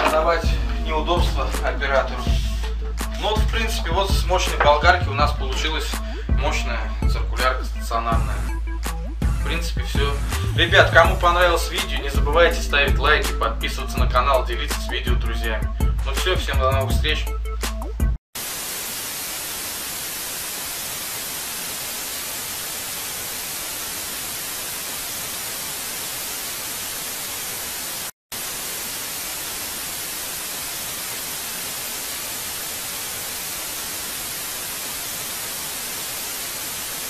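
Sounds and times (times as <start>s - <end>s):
white noise static hiss: 0.0s - 3.4s, 18.4s - 37.0s.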